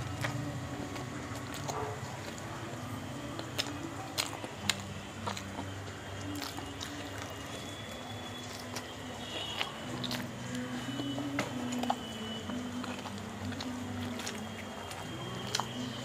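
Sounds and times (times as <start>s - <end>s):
chewing and wet mouth sounds: 0.0s - 16.0s
sharp mouth clicks and smacks: 3.2s - 7.6s, 9.6s - 16.0s.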